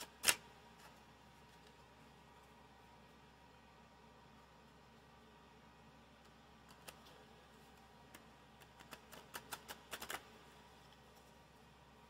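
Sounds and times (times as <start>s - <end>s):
playing cards clicking: 8.6s - 10.2s.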